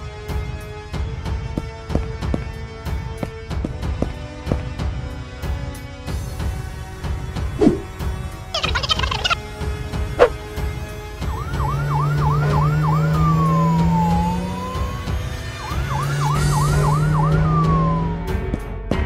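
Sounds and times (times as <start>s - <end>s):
toy fire-engine siren: 8.6s - 9.4s, 11.2s - 18.2s.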